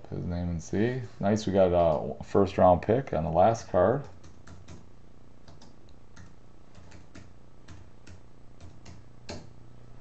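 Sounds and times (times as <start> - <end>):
low steady hum: 0.0 - 10.0
computer keyboard typing: 4.0 - 9.5.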